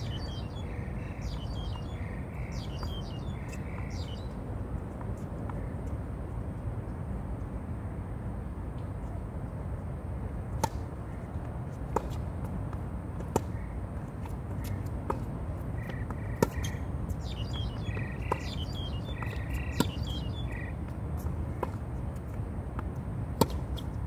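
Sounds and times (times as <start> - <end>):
birds chirping: 0.0 - 4.4, 15.6 - 21.0.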